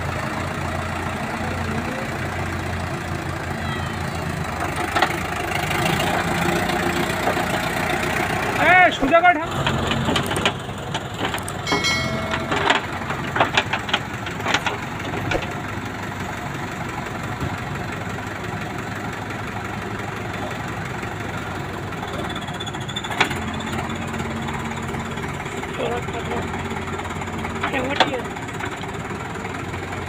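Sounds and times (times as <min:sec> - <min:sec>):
diesel engines idling: 0:00.0 - 0:30.0
sharp knocks: 0:11.7 - 0:14.6.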